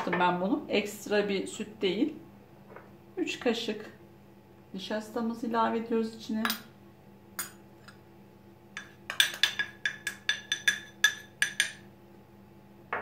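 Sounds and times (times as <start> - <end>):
metal spoon clinking on glass bowl: 6.4 - 6.7, 7.4 - 8.0, 8.8 - 11.8.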